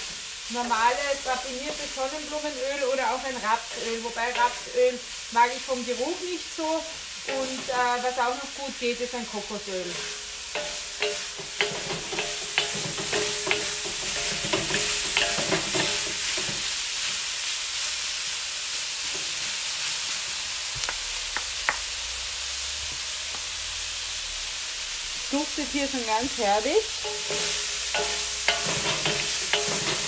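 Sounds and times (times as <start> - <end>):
food sizzling in a wok: 0.0 - 30.0
spatulas scraping metal wok: 9.3 - 16.8, 26.4 - 30.0.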